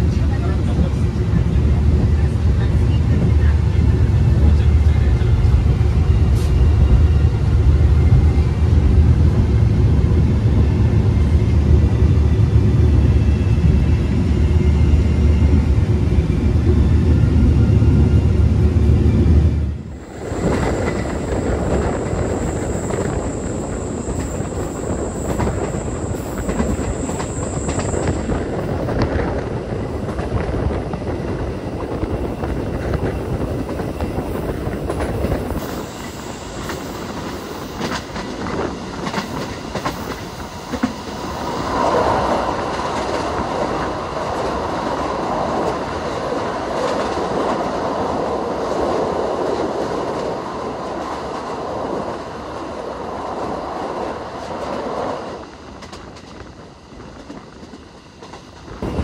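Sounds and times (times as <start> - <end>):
train wheels on rails: 0.0 - 59.0
rail joint clacks: 20.2 - 47.8.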